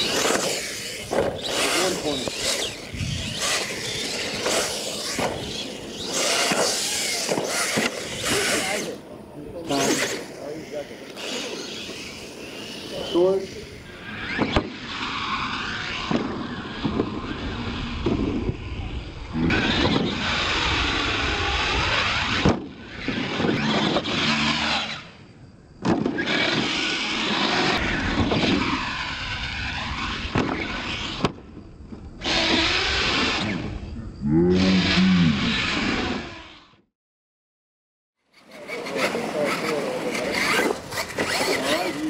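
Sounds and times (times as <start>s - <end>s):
toy truck electric motor whining: 0.0s - 9.0s, 9.6s - 18.0s, 19.4s - 25.2s, 26.1s - 31.2s, 32.2s - 36.8s, 38.3s - 42.0s.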